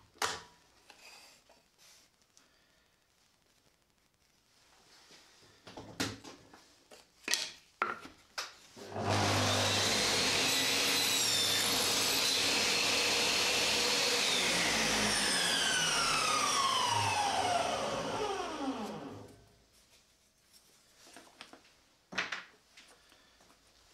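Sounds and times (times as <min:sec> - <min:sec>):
saw cutting wood: 0:08.8 - 0:19.3
table saw running: 0:08.8 - 0:19.4.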